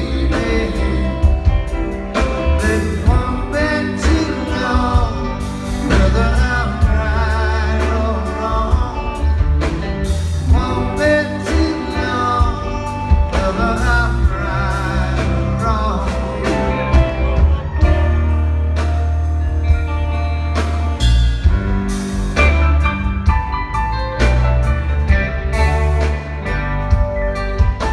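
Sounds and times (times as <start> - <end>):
lead vocalist singing: 0.0 - 18.2
live rock band playing: 0.0 - 27.9.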